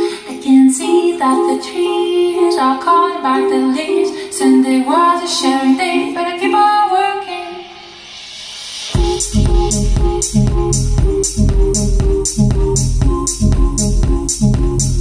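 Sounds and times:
woman singing over recorded music: 0.0s - 7.8s.

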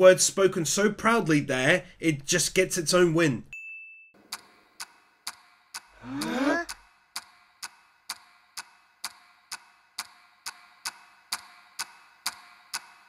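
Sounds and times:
clock timer ticking: 4.3s - 13.0s
short rising cry: 6.0s - 6.7s.

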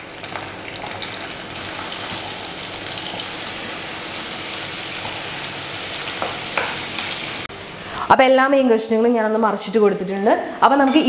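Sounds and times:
fish sizzling in a pan: 0.0s - 7.5s.

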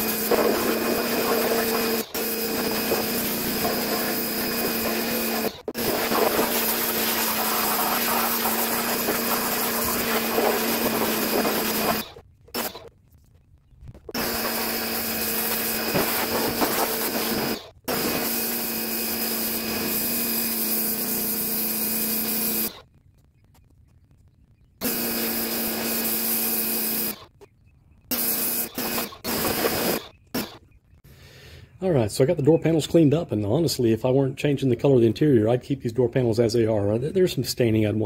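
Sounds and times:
water jet spraying plastic: 0.0s - 12.8s, 14.2s - 17.5s
pressure washer motor hum: 0.0s - 12.9s, 14.1s - 22.8s, 28.1s - 30.6s.

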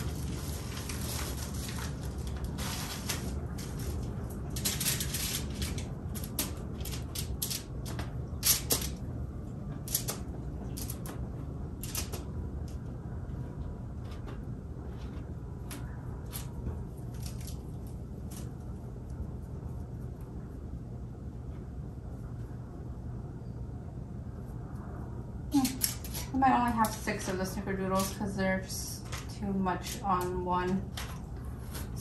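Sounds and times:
packaging and foil crinkling: 0.0s - 9.0s, 16.3s - 18.7s, 25.5s - 28.3s
low steady hum: 0.0s - 32.0s.

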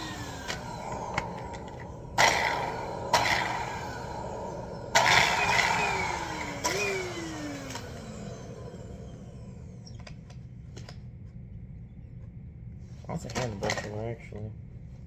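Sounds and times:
stick vacuum motor whine: 0.0s - 10.9s.

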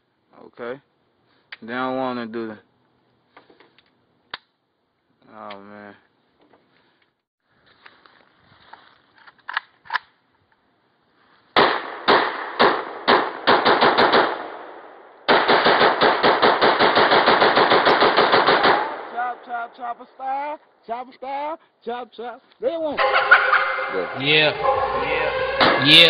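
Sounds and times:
rifle gunshots: 11.6s - 19.4s.

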